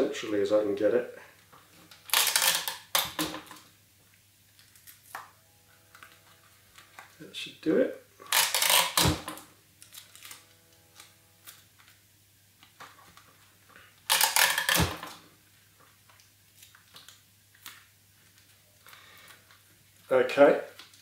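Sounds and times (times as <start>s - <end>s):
tape tearing rustle: 1.5s - 3.7s, 4.5s - 7.2s, 8.2s - 12.0s, 12.6s - 21.0s.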